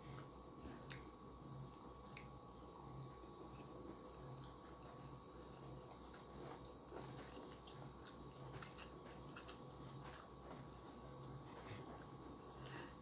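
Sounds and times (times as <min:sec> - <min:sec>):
low room hum: 0:00.0 - 0:13.0
chewing clicks: 0:04.4 - 0:10.8.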